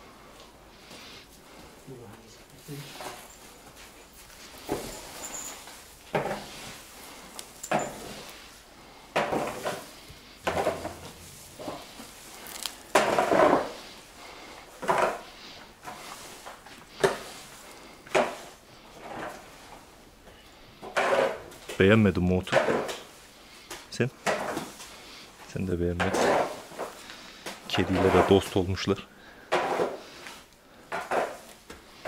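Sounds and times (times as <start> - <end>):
grass and straw rustling: 9.4 - 14.2.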